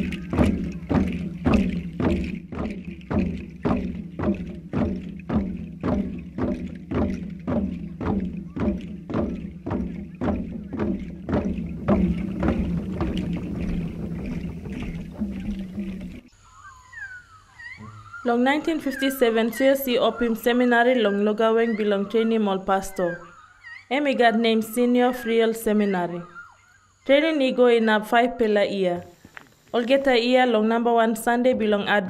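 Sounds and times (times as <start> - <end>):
drums beaten in steady rhythm: 0.0 - 16.3.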